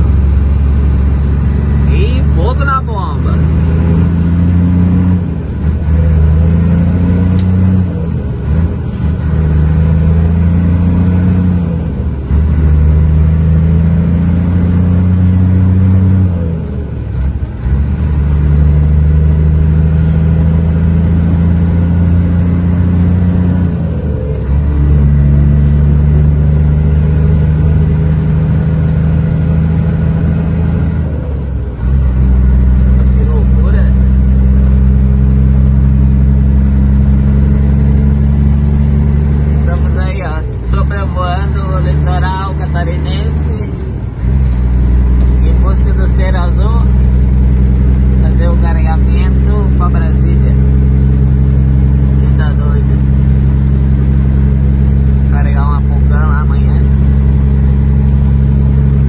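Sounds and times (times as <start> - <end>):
truck diesel engine pulling: 0.0 - 59.0.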